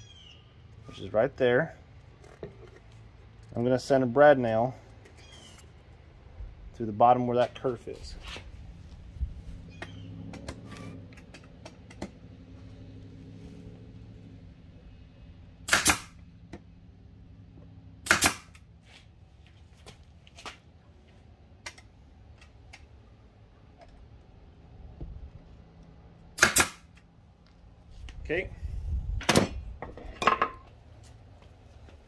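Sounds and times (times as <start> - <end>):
nail gun firing: 15.7 - 16.2, 18.0 - 18.6, 26.4 - 26.9.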